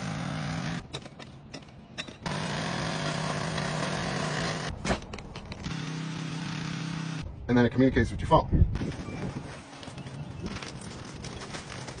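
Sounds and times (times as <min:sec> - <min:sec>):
small gasoline engine running: 0:00.0 - 0:00.8, 0:02.2 - 0:04.7, 0:05.7 - 0:07.2.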